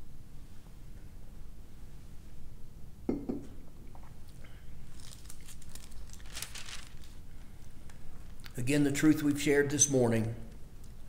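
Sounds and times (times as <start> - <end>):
crinkling and rustling: 4.8 - 8.6.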